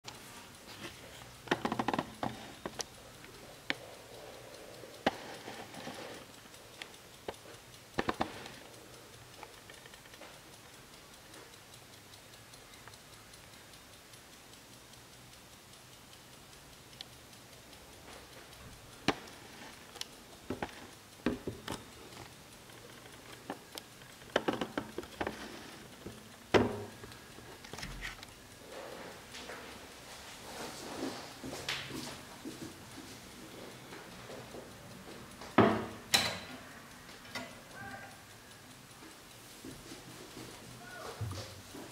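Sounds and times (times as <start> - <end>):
mantel clock ticking: 0.0 - 41.9
clicks and knocks: 22.7 - 28.3.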